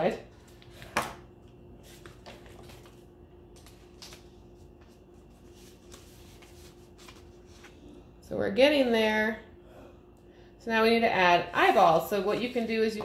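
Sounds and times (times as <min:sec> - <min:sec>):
paper rustling and tapping: 0:01.9 - 0:07.3.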